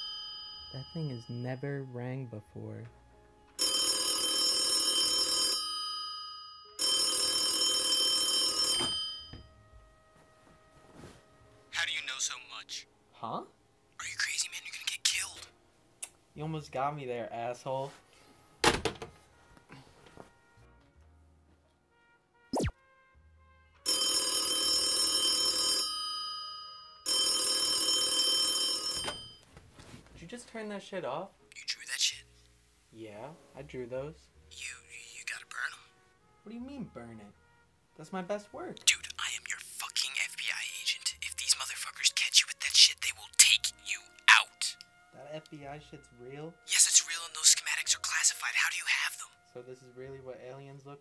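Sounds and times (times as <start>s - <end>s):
telephone bell ringing: 0.0s - 1.4s, 3.6s - 9.5s, 23.9s - 29.4s.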